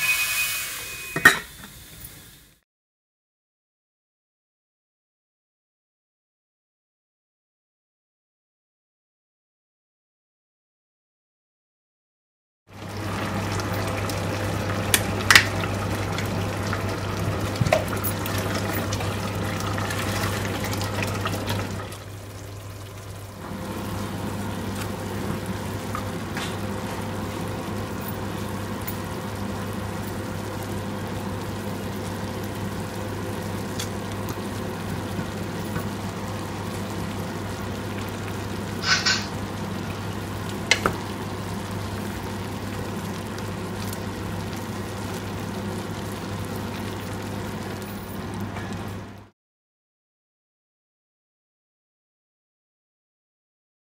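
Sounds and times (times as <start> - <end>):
food sizzling in a pot: 0.0 - 2.6, 12.7 - 49.1.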